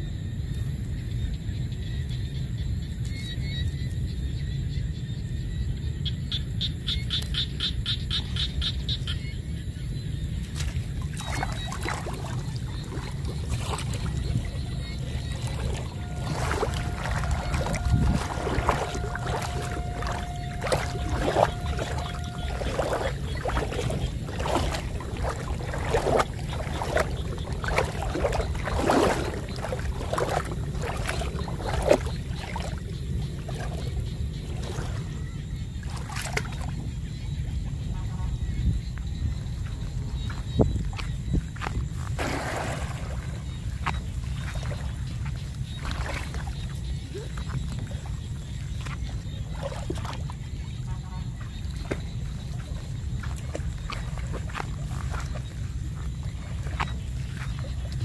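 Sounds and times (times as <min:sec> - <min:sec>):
legs splashing through muddy water: 0:10.1 - 0:58.0
low rumble: 0:12.0 - 0:35.8.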